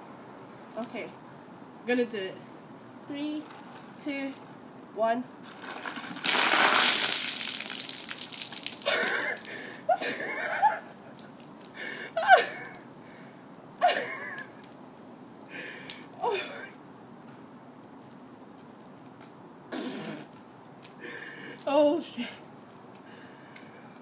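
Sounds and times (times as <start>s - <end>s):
water splashing on person: 5.5s - 12.9s
woman gasping and squealing: 8.8s - 10.3s.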